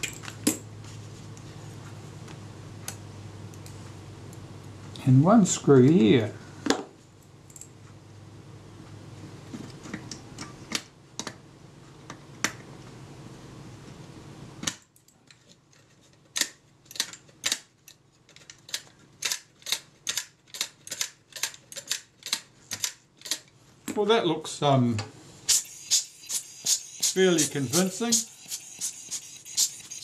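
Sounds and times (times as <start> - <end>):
steady hiss: 25.4 - 30.0.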